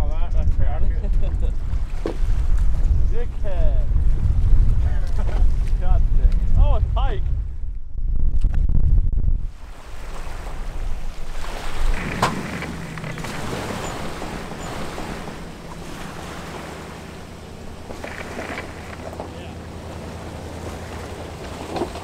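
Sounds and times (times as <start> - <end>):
wind buffeting microphone: 0.0 - 22.0
water splashing against boat hull: 9.5 - 22.0
boat engine idling: 9.6 - 22.0.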